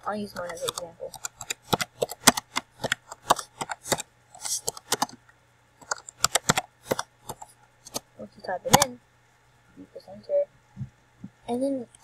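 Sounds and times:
keyboard typing: 0.0 - 9.0.

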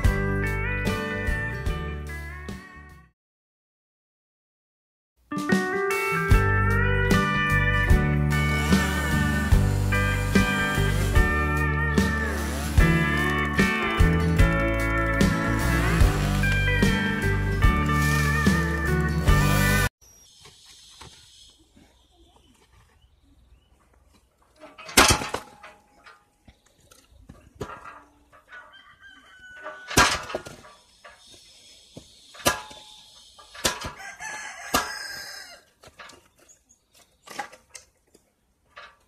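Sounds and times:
wood splitting cracks and knocks: 24.8 - 26.1, 29.9 - 30.6, 35.8 - 38.2.

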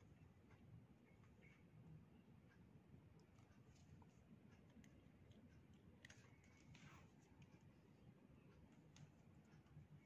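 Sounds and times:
soft cardboard rustle: 6.1 - 7.6.

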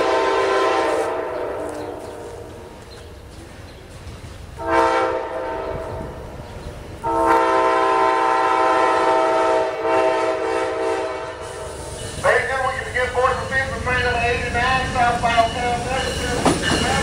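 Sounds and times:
locomotive air horn blasts: 0.0 - 2.5, 4.6 - 6.1, 7.0 - 11.8.

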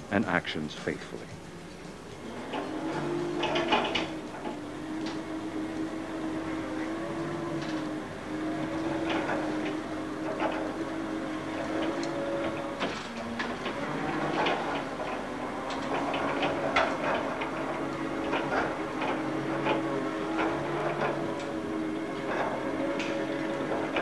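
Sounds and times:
vacuum cleaner motor hum: 1.1 - 24.0.

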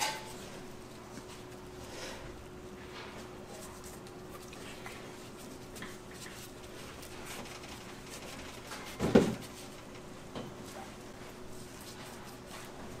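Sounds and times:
kitchen utensils clinking: 0.0 - 0.4
steady low hum: 0.0 - 13.0.

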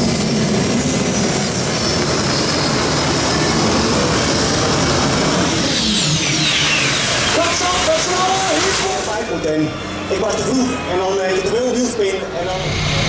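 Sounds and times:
gas turbine engine whine: 0.0 - 13.0.

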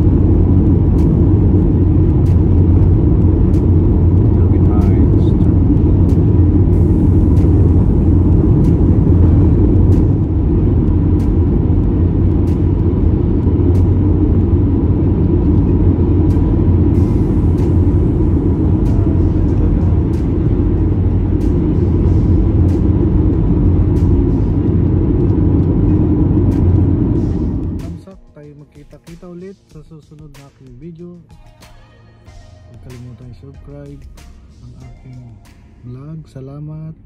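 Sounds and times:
car road and engine rumble: 0.0 - 31.3, 32.1 - 37.0.

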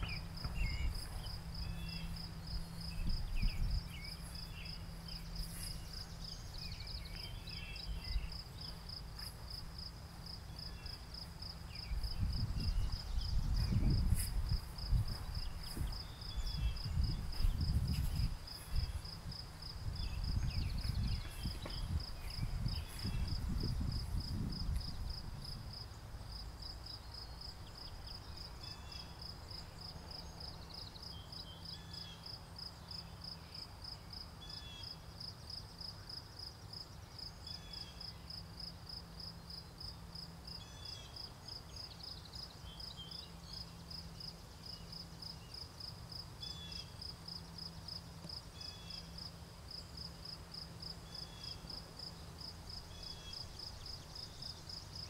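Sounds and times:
soft short insect call: 0.0 - 32.4, 40.5 - 55.0
crickets chirping: 0.0 - 55.0.

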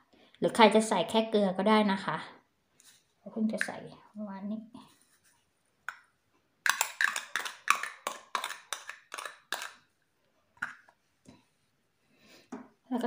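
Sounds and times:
plastic cup tapping: 6.7 - 9.8.

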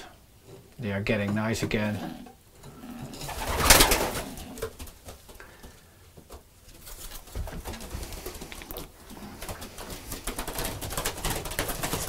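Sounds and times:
pigeons cooing: 2.0 - 5.8, 7.6 - 12.0.

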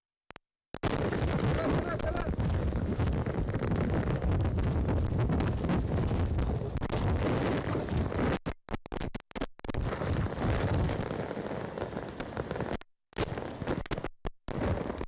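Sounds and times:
wind gusts buffeting microphone: 0.9 - 8.4, 9.8 - 12.7
torrential rain hiss: 1.5 - 2.6, 10.9 - 13.6.

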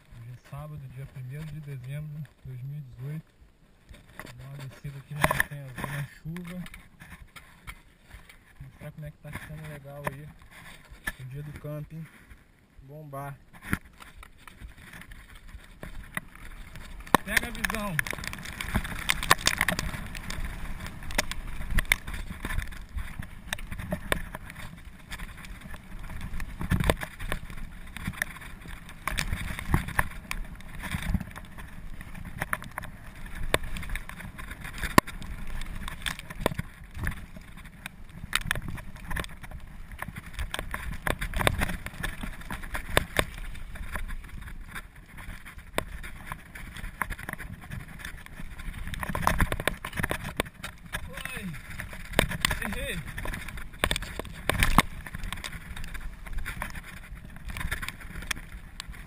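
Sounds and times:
bike rumbling and rattling: 0.0 - 59.0
bike knocking over bumps: 15.7 - 59.0.

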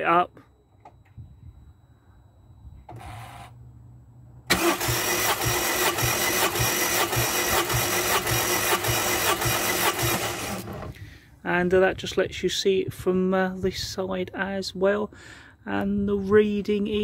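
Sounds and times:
starter motor cranking engine: 4.5 - 11.0.

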